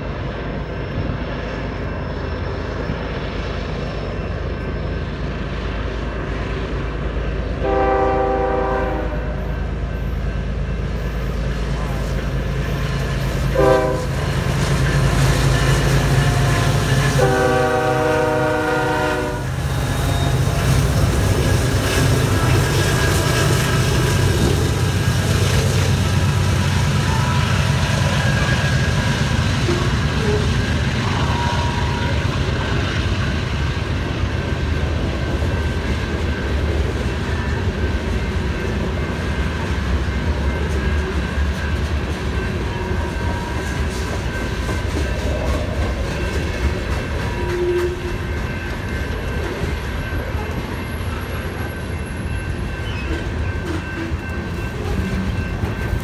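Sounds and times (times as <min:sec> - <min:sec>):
train horn: 0:07.6 - 0:09.7, 0:13.5 - 0:20.6, 0:29.6 - 0:32.4, 0:47.2 - 0:48.3
train wheel clatter: 0:09.5 - 0:56.0.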